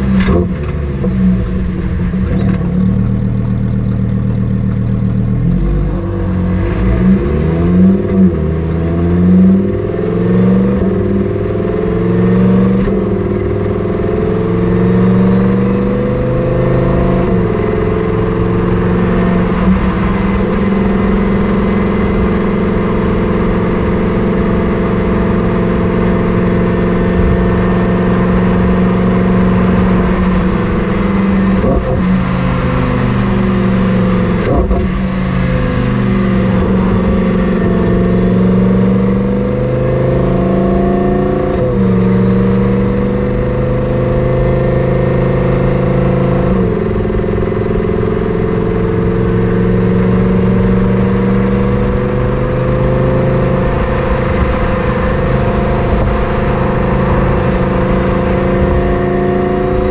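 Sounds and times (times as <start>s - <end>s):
exhaust cracks: 0.0s - 6.8s
car engine revving through gears: 0.0s - 59.9s.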